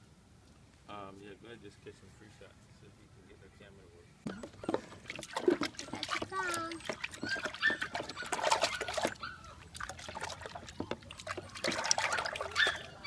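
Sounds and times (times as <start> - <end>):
water dribbling: 4.2 - 13.0
water splashing in plastic tub: 4.3 - 13.0.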